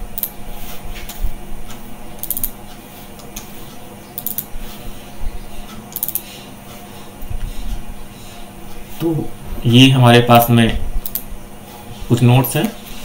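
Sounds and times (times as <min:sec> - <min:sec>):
low electrical hum: 0:00.0 - 0:13.0
computer mouse clicking: 0:04.2 - 0:04.5, 0:05.9 - 0:06.2, 0:11.0 - 0:11.2.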